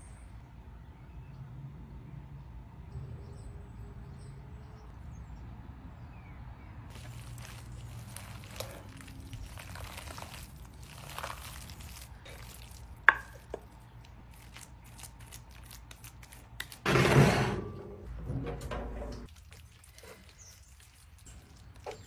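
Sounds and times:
wet squelching of food mixing: 6.9 - 16.8, 19.2 - 22.0.

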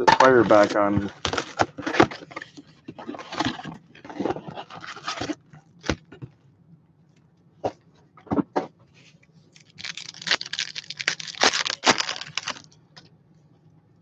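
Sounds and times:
packaging scraping and crinkling: 0.2 - 6.1, 9.6 - 12.8.

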